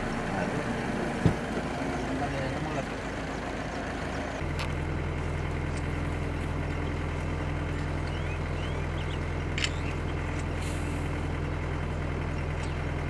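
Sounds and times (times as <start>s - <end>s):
vehicle engine idling: 0.0s - 13.0s
faint bird chirps: 7.7s - 10.3s
sharp click: 9.6s - 10.5s.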